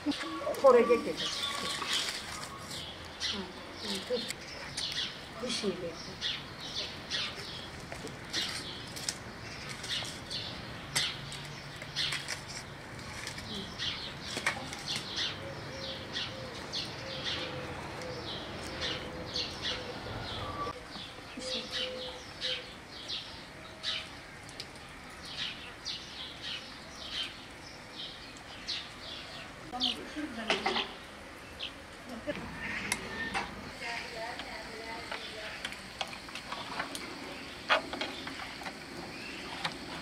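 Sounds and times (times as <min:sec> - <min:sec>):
small songbirds chirping: 0:00.0 - 0:40.0.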